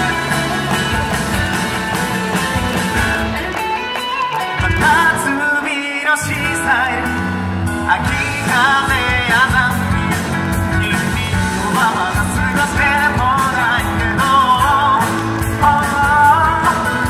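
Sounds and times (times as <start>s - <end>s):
loud instrumental accompaniment: 0.0s - 17.0s
man singing into microphone: 4.4s - 17.0s.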